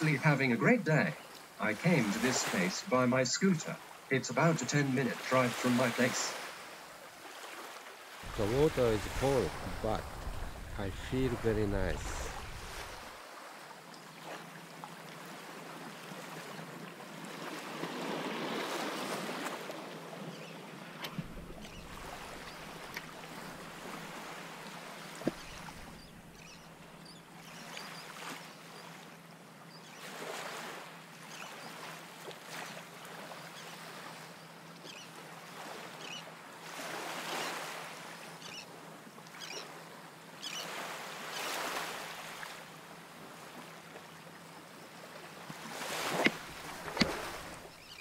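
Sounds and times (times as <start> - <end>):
small waves lapping: 0.0 - 48.0
wind rushing: 8.3 - 13.2.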